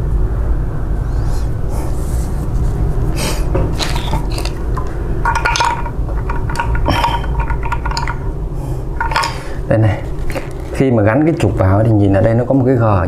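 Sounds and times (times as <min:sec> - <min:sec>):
steady low rumble: 0:00.0 - 0:12.8
plastic parts scraping and clicking: 0:03.6 - 0:08.2, 0:10.0 - 0:10.8.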